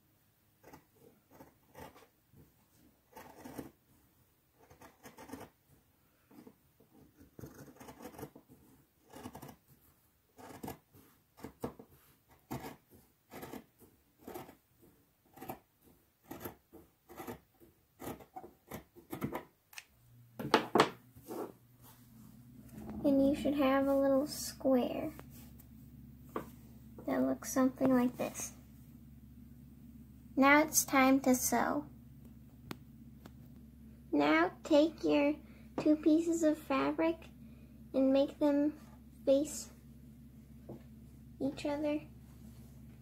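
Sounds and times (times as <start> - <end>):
scissors cutting fabric: 0.6 - 2.1, 3.0 - 3.8, 4.6 - 5.6, 7.0 - 8.4, 9.0 - 9.6, 10.4 - 11.7, 12.3 - 14.6, 15.3 - 19.4.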